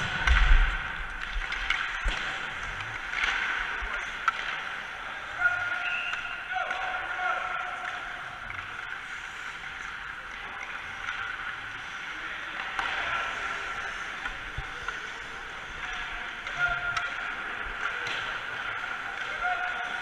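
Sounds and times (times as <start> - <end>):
skates and sticks on ice: 0.0 - 20.0
ice rink background hiss: 8.2 - 16.3.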